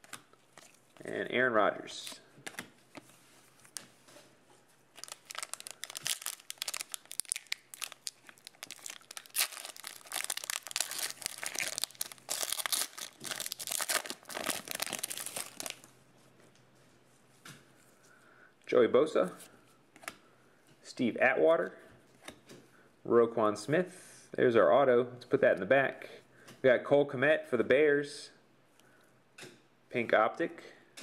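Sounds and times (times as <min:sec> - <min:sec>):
foil wrapper crinkling and tearing: 0:05.0 - 0:15.9.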